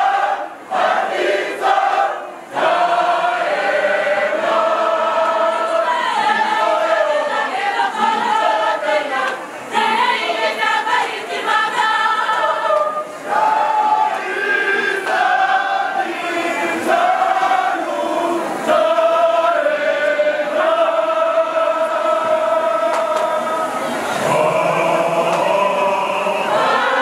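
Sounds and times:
mixed choir singing: 0:00.0 - 0:27.0.

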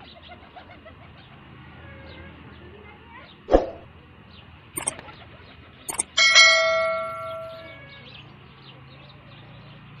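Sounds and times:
button click: 0:05.9 - 0:06.2
bright bell ding: 0:05.9 - 0:07.9.

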